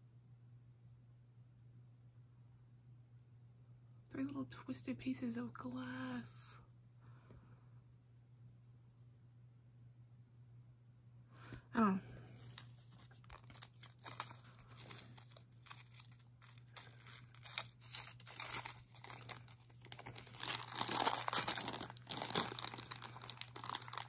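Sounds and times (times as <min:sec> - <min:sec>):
plastic bags crinkling: 0:12.4 - 0:24.0.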